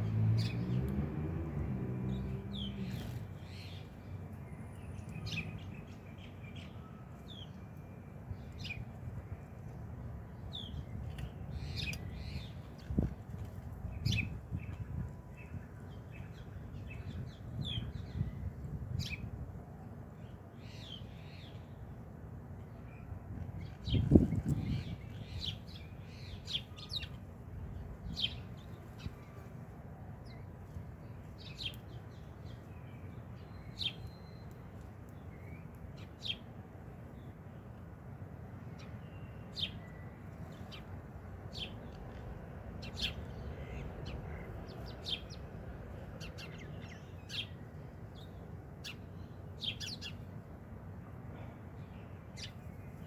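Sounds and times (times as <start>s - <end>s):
sparrow chirping: 2.1s - 7.6s, 14.0s - 19.3s, 33.4s - 34.7s, 46.2s - 50.2s.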